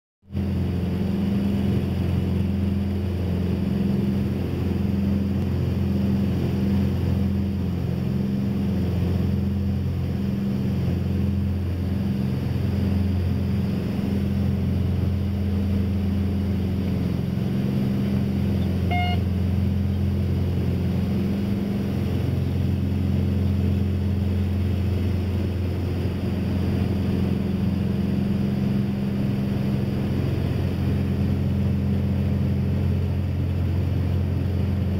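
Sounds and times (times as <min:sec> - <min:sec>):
aircraft cabin engine drone: 0:00.3 - 0:34.9
short beep: 0:18.6 - 0:19.3.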